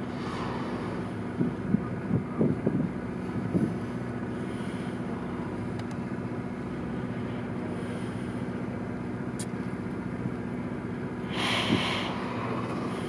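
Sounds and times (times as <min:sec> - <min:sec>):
boat engine humming: 0:00.0 - 0:13.0
wind on microphone: 0:01.3 - 0:03.8.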